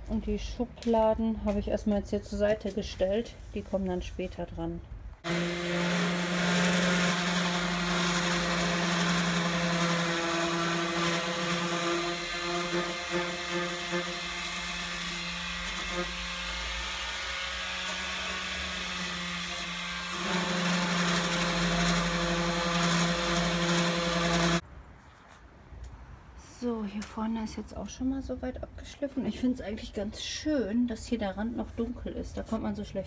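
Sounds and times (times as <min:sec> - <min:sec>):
electric sander on wood: 0:05.2 - 0:24.6.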